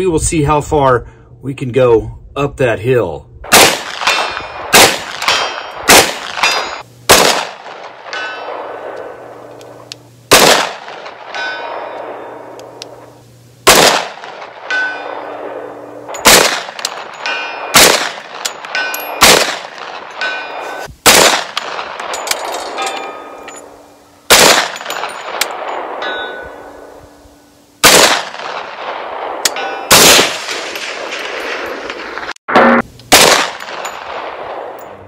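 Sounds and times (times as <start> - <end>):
gunshots with echo: 3.5 - 9.2, 10.3 - 12.4, 13.7 - 22.1, 24.3 - 26.6, 27.8 - 35.0
steel targets clanging: 4.0 - 6.9, 7.6 - 8.9, 10.9 - 12.6, 14.3 - 20.9, 21.6 - 23.9, 24.6 - 26.9, 29.4 - 30.0, 32.5 - 35.0.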